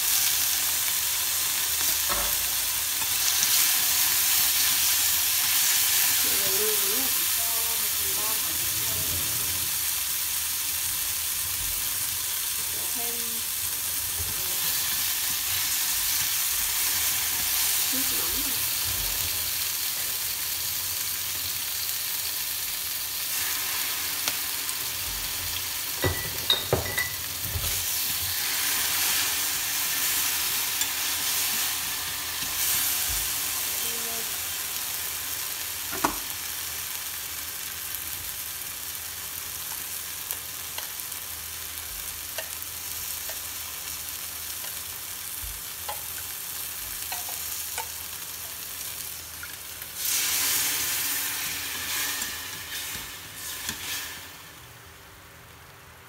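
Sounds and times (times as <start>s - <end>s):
food sizzling in oil: 0.0s - 55.9s
chopsticks clicking against pan: 42.3s - 42.6s.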